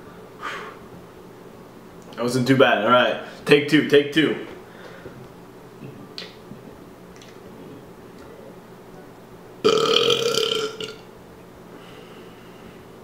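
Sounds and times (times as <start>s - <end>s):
man burping loudly: 9.6s - 11.0s.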